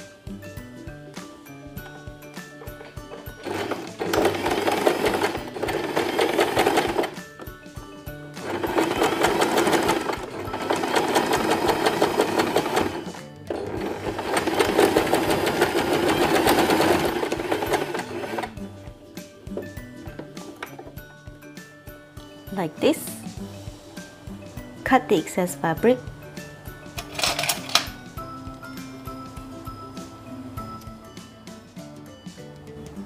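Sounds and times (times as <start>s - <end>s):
sewing machine stitching: 2.8s - 7.2s, 8.4s - 18.6s.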